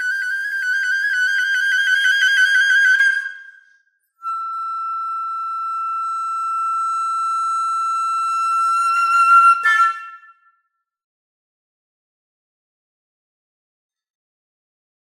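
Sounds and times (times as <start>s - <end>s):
flute holding high note: 4.2s - 10.3s.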